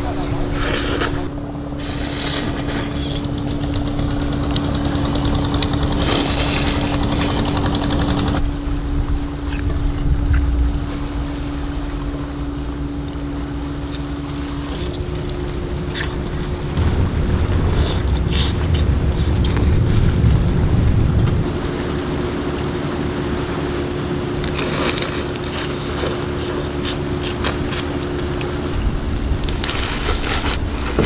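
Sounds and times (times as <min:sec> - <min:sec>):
boat engine humming: 0:00.0 - 0:31.0
crunching and chewing crab shell: 0:00.6 - 0:08.4, 0:14.7 - 0:16.7, 0:17.6 - 0:20.5, 0:24.4 - 0:28.6, 0:29.4 - 0:31.0.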